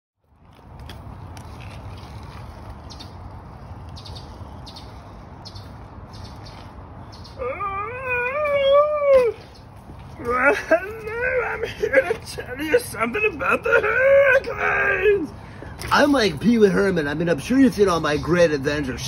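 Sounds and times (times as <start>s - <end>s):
bicycle ticking: 0.2s - 7.4s
man wailing in falsetto: 7.4s - 9.4s, 10.2s - 15.3s.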